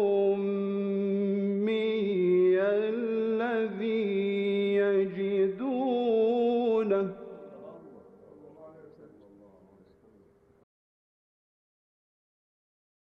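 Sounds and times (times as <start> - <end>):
man reciting melodically: 0.0 - 10.1.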